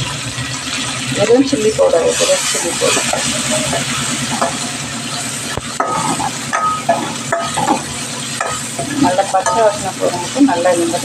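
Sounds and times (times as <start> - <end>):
vegetables sizzling in hot oil: 0.0 - 11.0
spoon scraping and clinking on pan: 5.8 - 9.9.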